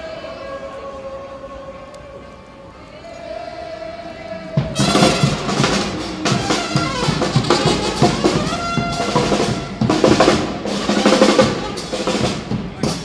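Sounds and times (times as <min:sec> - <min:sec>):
parade band drums and brass: 0:04.6 - 0:13.0.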